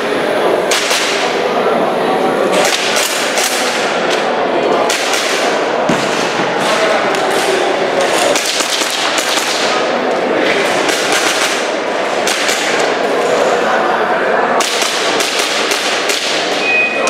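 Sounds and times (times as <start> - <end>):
steady background noise: 0.0 - 17.0
airsoft pistol shots: 8.3 - 9.8.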